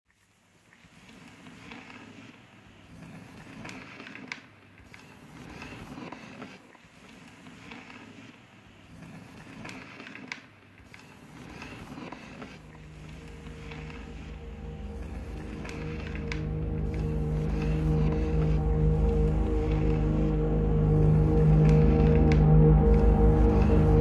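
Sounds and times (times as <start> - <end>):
grainy textured noise: 11.1 - 24.0.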